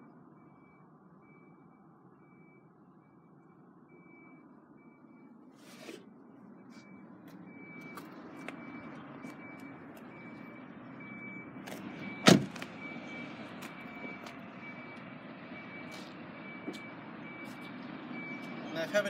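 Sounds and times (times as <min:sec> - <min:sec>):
car door slamming: 0:12.2 - 0:12.7.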